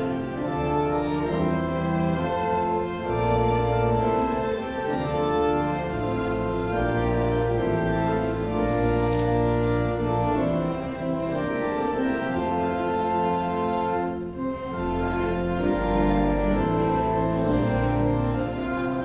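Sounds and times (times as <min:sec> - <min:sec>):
organ playing a hymn: 0:00.0 - 0:19.0.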